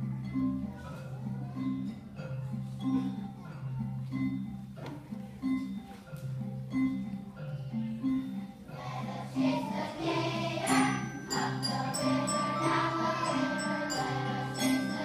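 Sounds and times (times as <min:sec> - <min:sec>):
wooden xylophones playing: 0:00.0 - 0:15.0
high tinkling percussion: 0:00.1 - 0:15.0
young children singing: 0:08.7 - 0:15.0.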